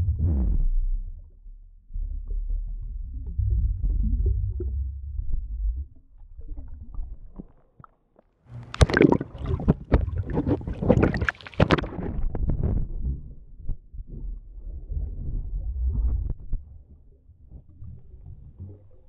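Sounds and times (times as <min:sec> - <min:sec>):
muffled underwater rumble: 0:00.0 - 0:07.8, 0:08.6 - 0:19.0
water splashing: 0:08.6 - 0:12.2.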